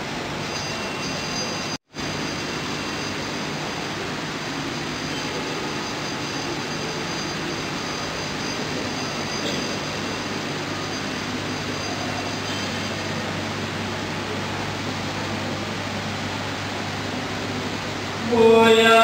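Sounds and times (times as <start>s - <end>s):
rushing background noise: 0.0s - 18.4s
faint high whine: 0.0s - 19.0s.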